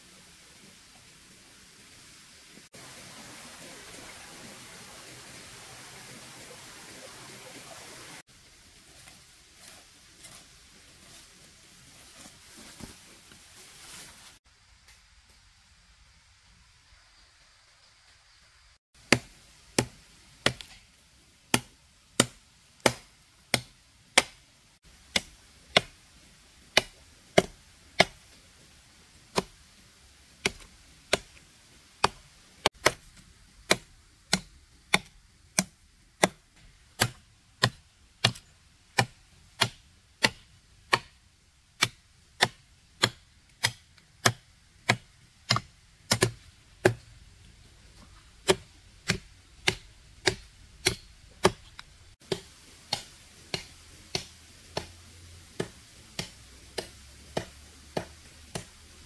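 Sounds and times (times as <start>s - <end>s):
machete chopping wood: 19.1s - 20.8s, 21.5s - 24.4s, 25.1s - 26.0s, 26.7s - 28.2s, 29.3s - 29.6s, 30.4s - 31.4s, 32.0s - 33.1s, 33.7s - 36.4s, 37.0s - 41.2s, 41.8s - 47.1s, 48.4s - 55.0s, 55.6s - 58.8s.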